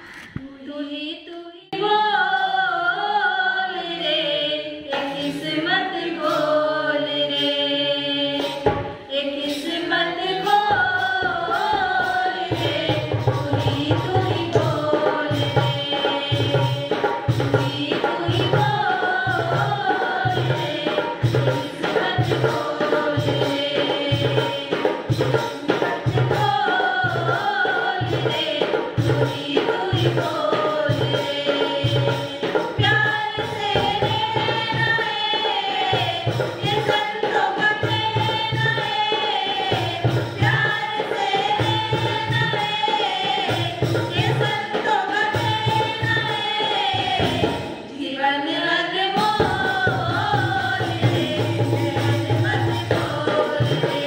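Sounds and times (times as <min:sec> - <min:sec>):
group singing devotional song: 0:00.0 - 0:54.0
drum beat: 0:10.5 - 0:47.8, 0:49.2 - 0:54.0.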